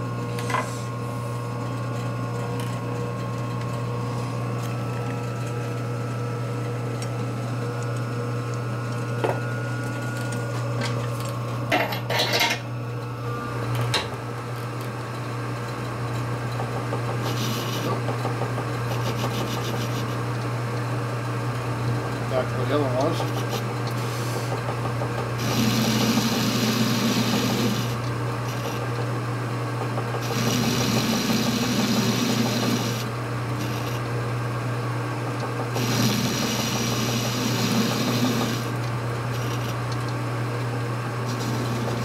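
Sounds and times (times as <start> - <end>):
metal lathe humming: 16.4 - 20.4, 21.4 - 29.2, 29.8 - 34.5, 35.4 - 40.3, 41.0 - 42.0
lathe tool cutting hiss: 17.2 - 18.0, 25.4 - 28.8, 30.2 - 34.0, 35.8 - 38.8.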